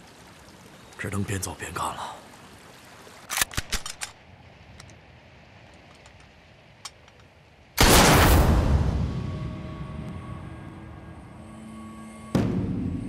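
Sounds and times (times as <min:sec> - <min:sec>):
rifle bolt metallic clicks: 0:03.3 - 0:05.0
loud rifle shot: 0:07.8 - 0:09.0.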